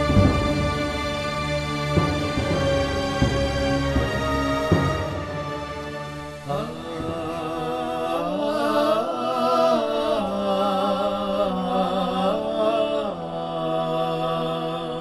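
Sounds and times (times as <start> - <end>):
man chanting: 6.4 - 15.0.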